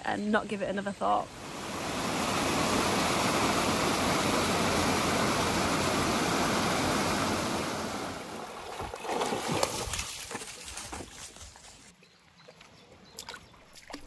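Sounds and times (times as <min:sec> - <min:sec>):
water rushing over weir: 0:01.2 - 0:10.0
dog splashing through stream: 0:01.4 - 0:11.9, 0:13.2 - 0:14.0.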